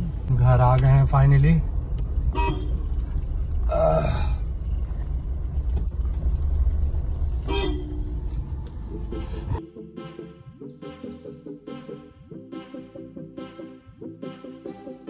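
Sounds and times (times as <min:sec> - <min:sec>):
car engine and road rumble: 0:00.0 - 0:09.6
short car horn toots: 0:02.4 - 0:02.8, 0:07.4 - 0:08.2.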